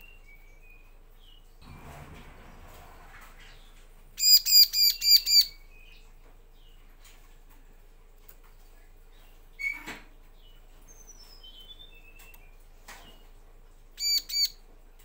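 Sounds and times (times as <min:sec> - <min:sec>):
bird calling: 0:14.0 - 0:14.6.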